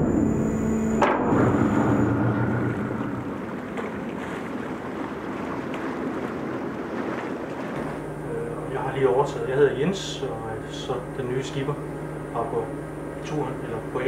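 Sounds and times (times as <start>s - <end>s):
low engine hum: 0.0s - 14.0s
wind and water rushing: 1.0s - 10.4s.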